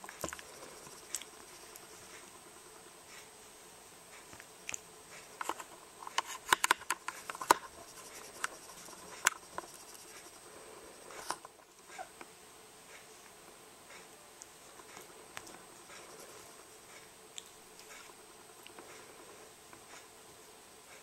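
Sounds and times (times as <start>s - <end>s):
hand rubbing fur on blanket: 7.7s - 10.4s.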